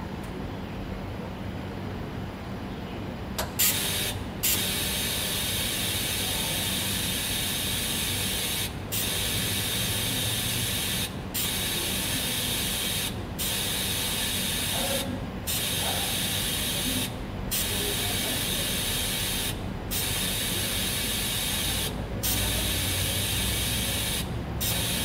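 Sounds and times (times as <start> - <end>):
welding arc hiss: 3.6 - 25.0.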